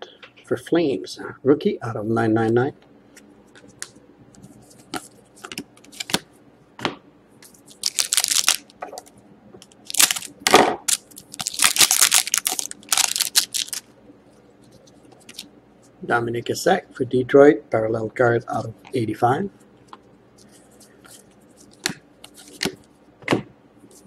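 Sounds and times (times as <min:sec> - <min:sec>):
card pack wrapper crinkling and tearing: 0:07.7 - 0:09.1, 0:09.8 - 0:10.3, 0:10.9 - 0:13.9.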